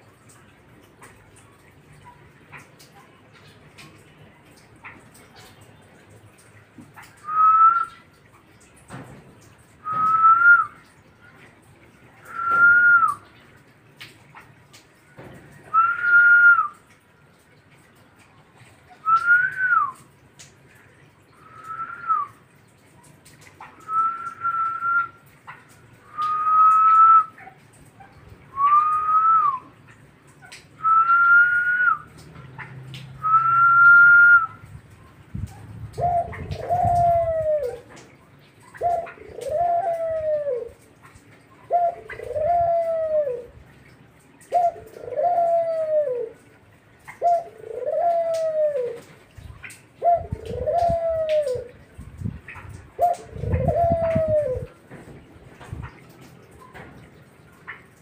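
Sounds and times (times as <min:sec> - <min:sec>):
dove cooing: 0:35.5 - 0:38.0, 0:38.6 - 0:40.8, 0:41.6 - 0:43.8, 0:44.4 - 0:51.8, 0:52.5 - 0:54.8.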